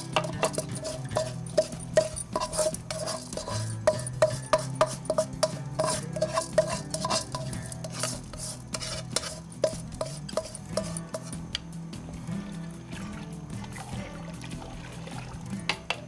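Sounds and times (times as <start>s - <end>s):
spoon clinking against pot: 0.0s - 11.4s.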